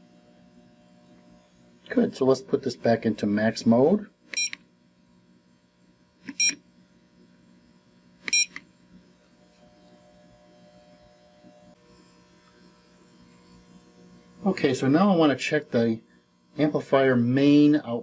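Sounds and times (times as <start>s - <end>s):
faint steady hum: 0.0s - 18.0s
short high beeps: 4.4s - 4.6s, 6.3s - 6.6s, 8.3s - 8.6s.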